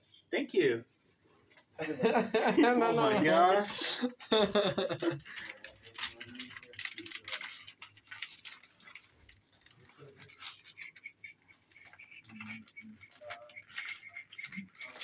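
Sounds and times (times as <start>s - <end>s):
paper wrapping crinkling and tearing: 3.7s - 15.0s.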